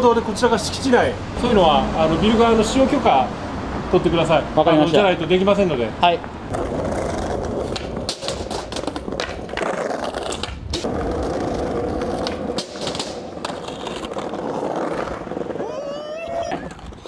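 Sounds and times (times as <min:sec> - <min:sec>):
skateboard clacks: 0:06.5 - 0:17.0
skateboard wheels rolling on tiles: 0:06.5 - 0:17.0.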